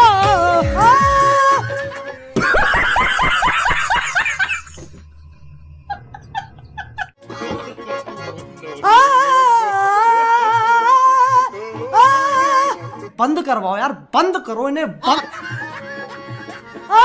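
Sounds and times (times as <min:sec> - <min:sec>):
man laughing: 0:01.6 - 0:04.8, 0:05.9 - 0:07.1, 0:15.0 - 0:17.0.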